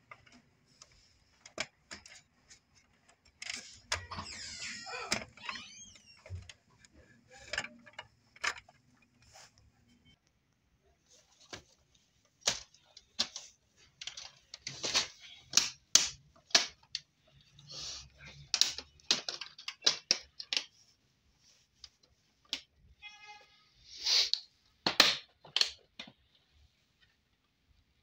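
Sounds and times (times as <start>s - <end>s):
plastic clicks and snaps: 18.4s - 20.7s, 24.3s - 26.2s.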